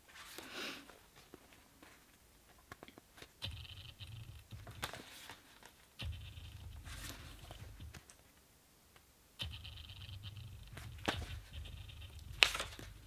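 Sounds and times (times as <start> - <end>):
paper pages flicking: 2.7 - 8.3, 9.4 - 13.0
faint hum: 3.3 - 13.0.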